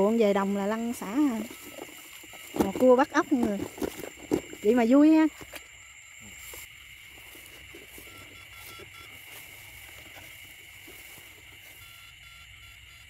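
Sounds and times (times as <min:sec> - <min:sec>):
frogs and insects trilling: 0:00.0 - 0:13.0
footsteps through wet grass: 0:06.3 - 0:11.9.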